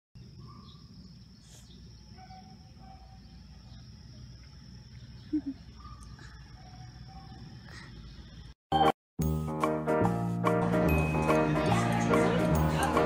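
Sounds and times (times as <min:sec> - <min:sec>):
insect drone: 0:00.2 - 0:08.6
bird-like calls: 0:05.0 - 0:08.5.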